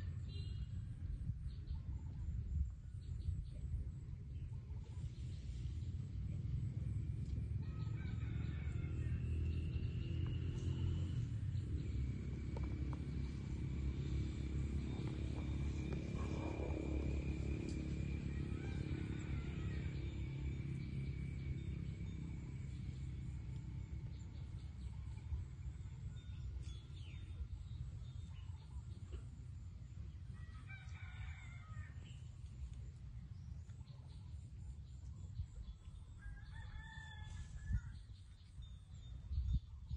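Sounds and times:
steady low rumble: 0.0s - 30.9s, 31.6s - 39.9s
distant rooster crowing: 7.3s - 11.2s, 12.6s - 24.3s, 30.3s - 32.3s, 36.1s - 38.3s.

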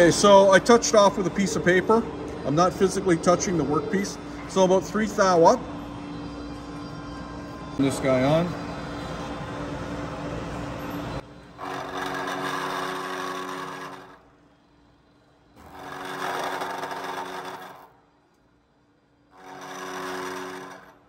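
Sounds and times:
milling machine cutting metal: 11.6s - 14.2s, 15.6s - 17.9s, 19.4s - 21.0s.

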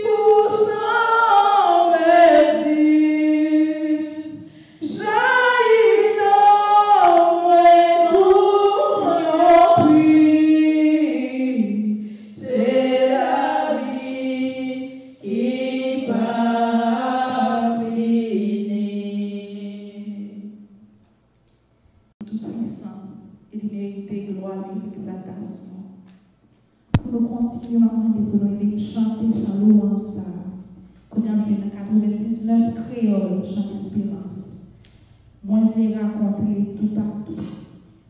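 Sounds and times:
woman singing a hymn: 0.0s - 20.5s.

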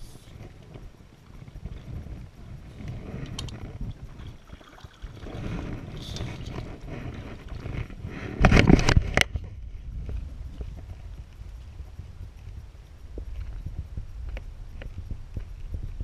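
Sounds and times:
paddle noise: 2.7s - 9.1s
water sloshing: 3.9s - 7.9s.

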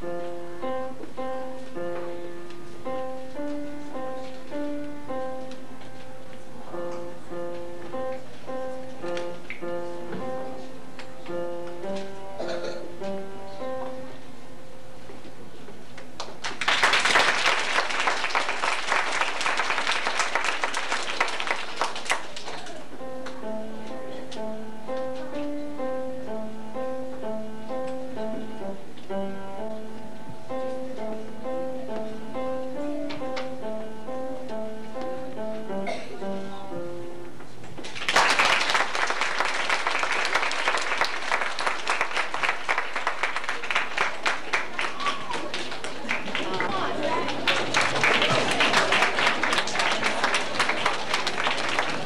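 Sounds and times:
piano piece: 0.0s - 52.0s
audience applauding: 16.2s - 22.8s, 37.8s - 52.0s.

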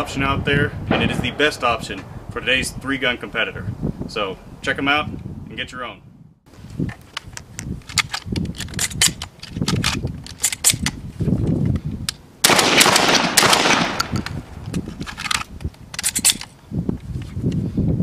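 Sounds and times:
shotgun shells clicking into magazine: 7.1s - 11.0s, 14.0s - 16.5s
shotgun shots: 12.4s - 14.2s.

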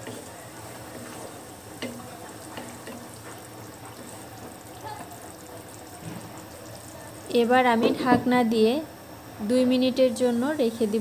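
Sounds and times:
spatula stirring fish: 0.0s - 8.0s
curry simmering and sizzling: 0.0s - 8.3s, 9.9s - 11.0s
spatula knocking on pan: 1.8s - 3.2s.

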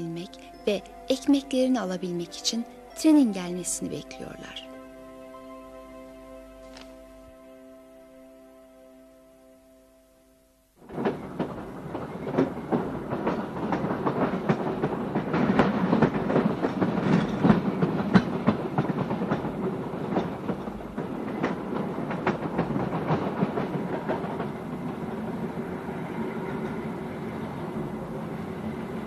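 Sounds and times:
train wheels clattering: 10.8s - 29.0s.

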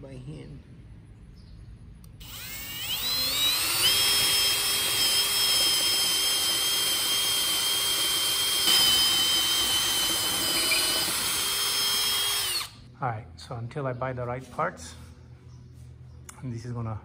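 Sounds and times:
cordless drill whining: 2.2s - 12.8s.

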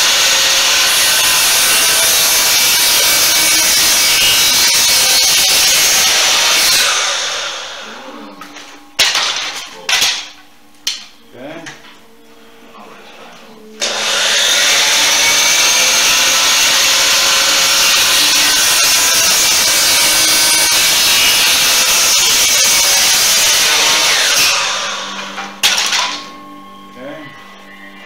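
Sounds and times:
chop saw cutting wood: 0.0s - 8.0s, 13.8s - 26.3s.

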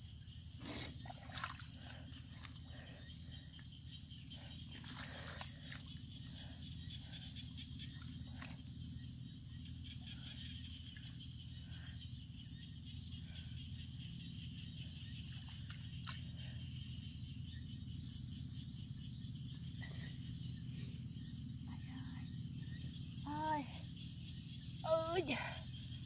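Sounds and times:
constant high hum: 0.0s - 26.0s
hands squelching in wet mud: 0.6s - 3.0s, 4.7s - 6.0s.

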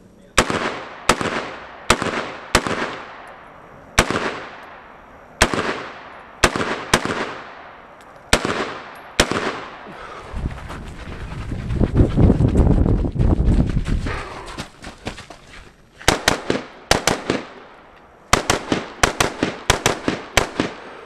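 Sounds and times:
rifle shots: 0.4s - 9.9s, 16.1s - 20.9s
ringing echo of gunshots: 0.4s - 9.9s, 16.1s - 21.0s.

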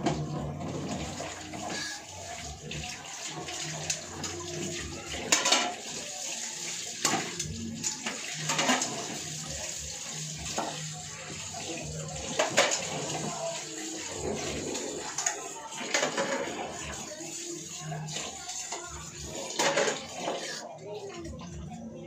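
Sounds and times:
dishes clinking: 5.3s - 5.8s
tap running into sink: 12.3s - 13.4s.

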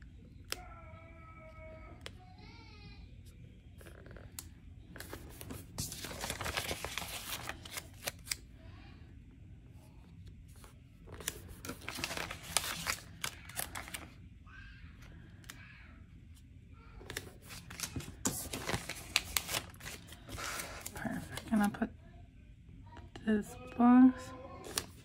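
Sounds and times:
paper rustling and crackling: 5.0s - 8.4s, 10.6s - 14.2s, 17.0s - 21.8s, 24.6s - 25.0s
stickers peeling from backing: 11.1s - 14.2s, 17.1s - 21.8s.

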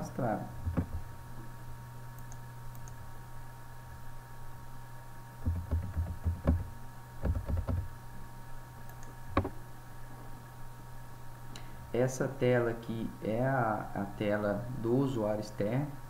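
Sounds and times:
low electrical hum: 0.0s - 16.0s
keyboard and mouse clicking: 2.2s - 3.0s, 5.4s - 7.9s.

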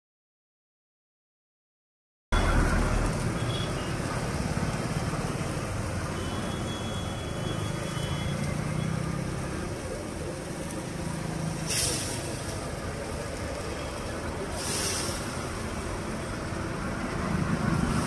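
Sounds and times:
street traffic rumble and hiss: 2.4s - 18.0s.

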